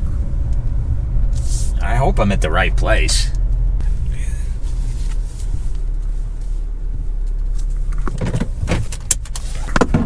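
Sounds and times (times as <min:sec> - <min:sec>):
car cabin rumble: 0:00.0 - 0:10.0
sharp clicks and knocks: 0:07.2 - 0:10.0.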